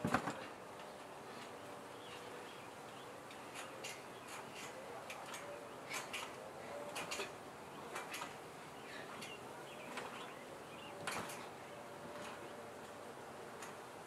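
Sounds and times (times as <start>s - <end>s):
wooden frames clicking and knocking: 3.3s - 13.9s.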